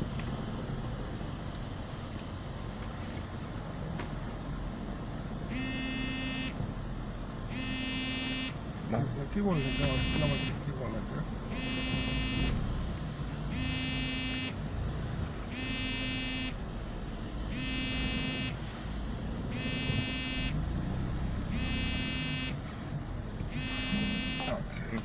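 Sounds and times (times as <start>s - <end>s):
low rumble of moving car: 0.0s - 25.0s
car warning buzzer: 5.5s - 6.6s, 7.5s - 8.6s, 9.5s - 10.6s, 11.5s - 12.6s, 13.5s - 14.6s, 15.5s - 16.6s, 17.5s - 18.6s, 19.5s - 20.6s, 21.5s - 22.6s, 23.5s - 24.6s.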